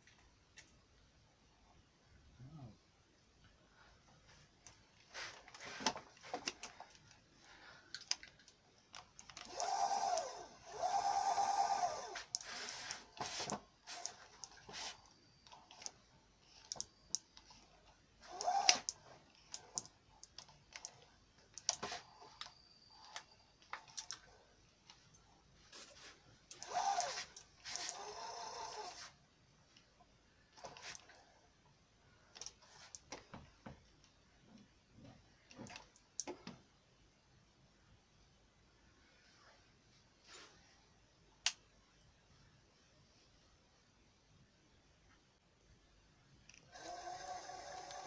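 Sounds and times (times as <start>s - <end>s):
clicks and knocks of handled parts: 7.9s - 10.3s.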